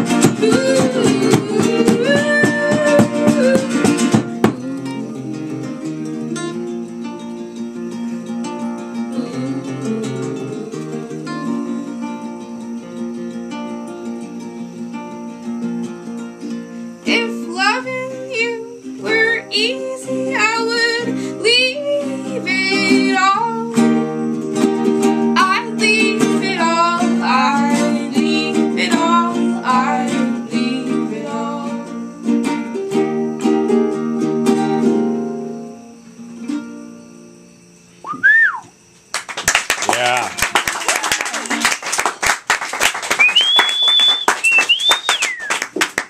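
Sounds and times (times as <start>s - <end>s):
two women singing: 0.0s - 6.5s, 9.1s - 12.5s, 17.0s - 32.3s
acoustic guitars strummed: 0.0s - 38.3s
person whooping: 38.0s - 38.7s, 39.9s - 41.5s, 43.2s - 45.6s.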